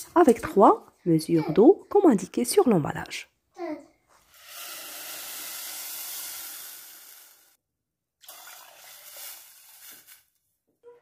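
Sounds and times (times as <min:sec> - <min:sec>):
water pouring into a saucepan: 0:04.3 - 0:07.6, 0:08.2 - 0:10.3.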